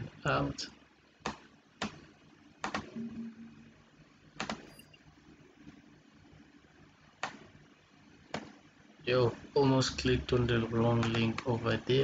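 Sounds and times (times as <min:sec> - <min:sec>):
low steady hum: 0:00.0 - 0:12.0
mouse and keyboard clicks: 0:02.6 - 0:03.0, 0:04.4 - 0:04.8, 0:07.2 - 0:07.5, 0:08.3 - 0:08.6.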